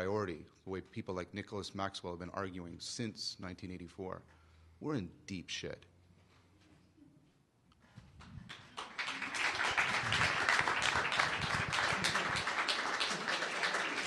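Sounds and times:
audience applauding: 8.5s - 14.0s.

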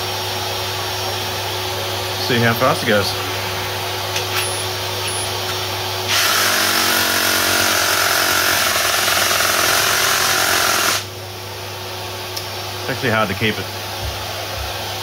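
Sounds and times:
steady low hum: 0.0s - 6.1s
reciprocating saw cutting timber: 6.1s - 11.1s.

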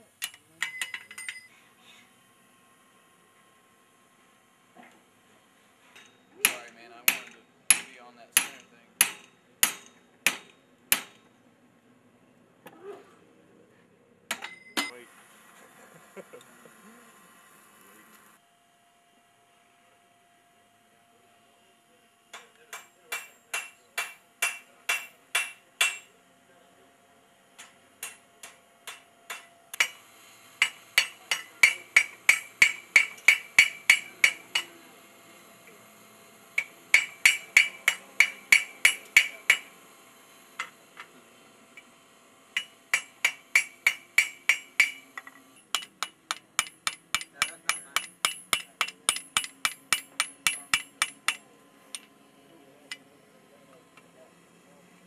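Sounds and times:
hammer striking metal on anvil: 6.0s - 11.3s, 22.3s - 26.1s, 27.6s - 30.0s, 30.6s - 34.8s, 36.6s - 39.7s, 42.6s - 52.1s
anvil ringing: 14.4s - 14.9s, 45.8s - 51.4s.

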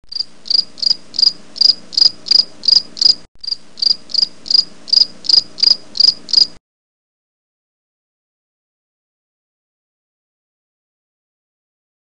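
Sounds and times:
cricket chirping: 0.1s - 6.6s.

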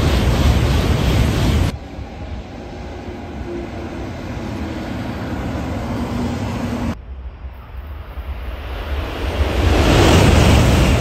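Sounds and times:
train rushing past: 0.0s - 11.0s.

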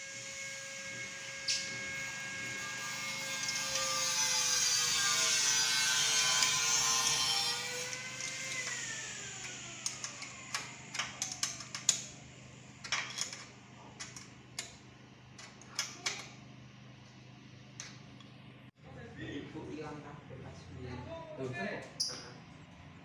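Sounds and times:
small motor whine: 0.0s - 11.0s.

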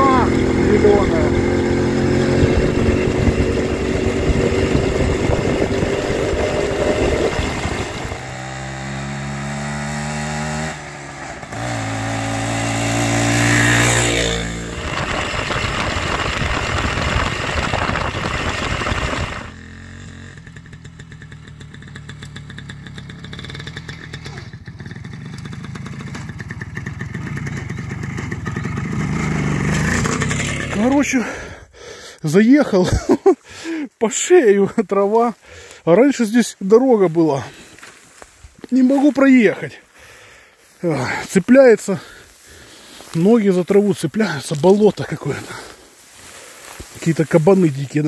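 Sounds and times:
two-stroke motorcycle engine running: 0.0s - 31.3s.

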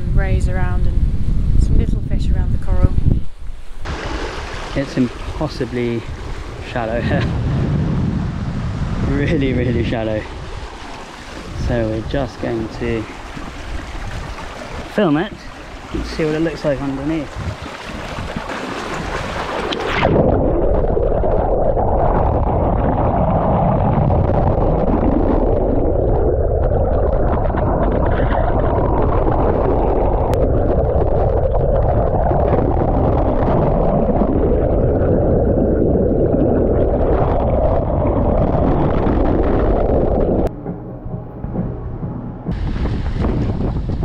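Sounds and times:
muffled underwater water rushing: 0.0s - 44.0s
wake hissing and splashing: 3.8s - 6.6s, 10.2s - 20.2s.

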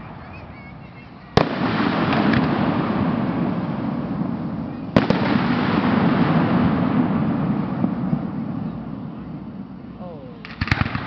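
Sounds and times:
firework bangs: 0.0s - 11.0s.

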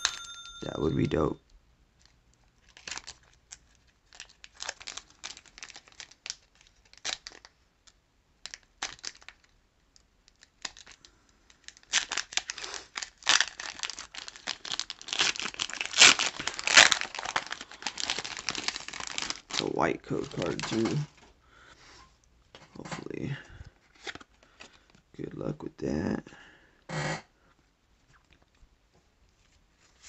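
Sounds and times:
foil wrapper crinkling and tearing: 2.0s - 21.3s.

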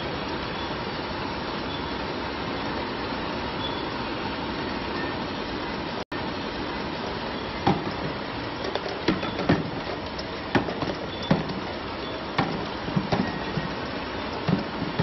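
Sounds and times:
steady machine noise: 6.2s - 15.0s
sharp knocks and clicks: 7.6s - 15.0s.

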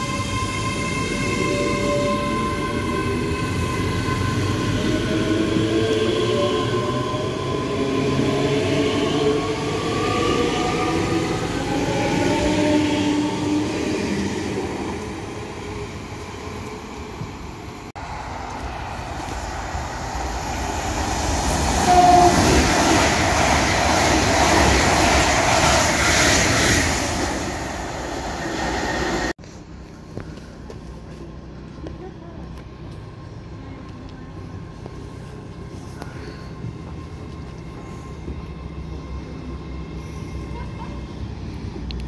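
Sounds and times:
train rumble: 0.0s - 42.0s.

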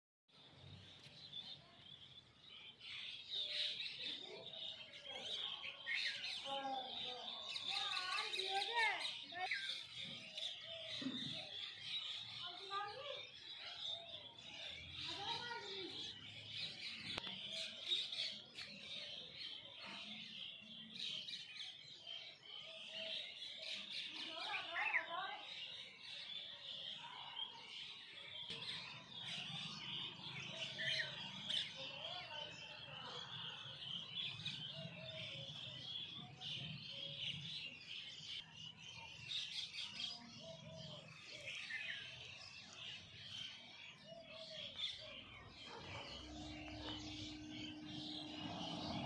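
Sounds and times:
small birds chirping: 0.3s - 49.0s.

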